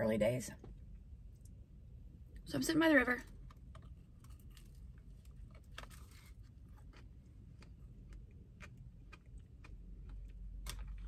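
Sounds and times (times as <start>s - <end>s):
faint low hum: 0.0s - 11.0s
chewing with wet mouth clicks: 6.8s - 11.0s.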